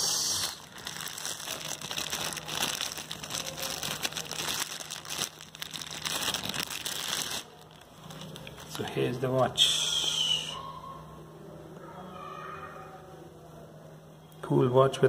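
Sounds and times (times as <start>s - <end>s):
plastic wrapping crinkling: 0.0s - 9.1s.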